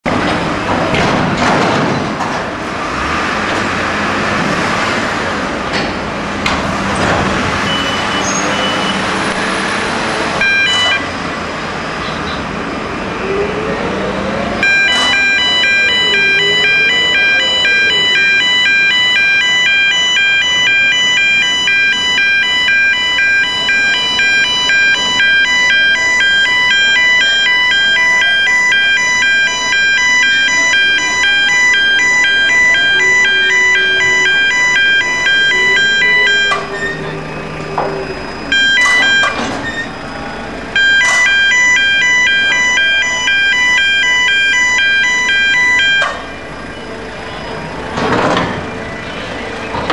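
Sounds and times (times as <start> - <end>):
pulsing shrill warning alarm: 10.4 - 11.2, 14.6 - 47.8
low wailing tone: 14.6 - 44.4.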